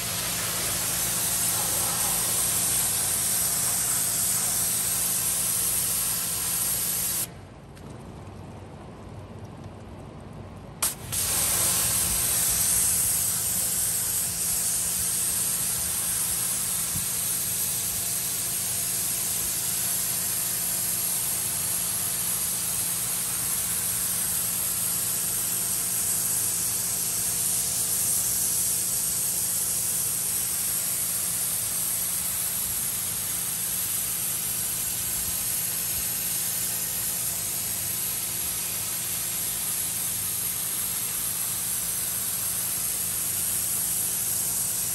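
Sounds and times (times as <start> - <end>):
high-pressure water spraying carpet: 0.0 - 7.3, 10.8 - 44.9
pressure washer click: 10.8 - 12.2.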